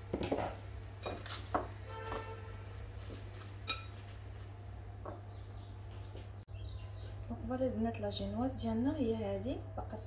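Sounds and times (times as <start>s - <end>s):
low electrical hum: 0.0s - 10.0s
dishes and utensils clinking: 3.6s - 4.0s.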